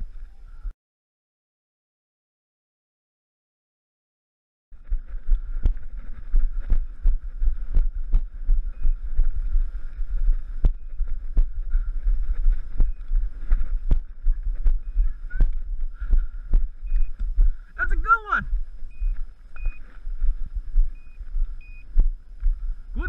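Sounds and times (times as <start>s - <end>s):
wind buffeting microphone: 4.8s - 17.8s, 18.4s - 23.0s.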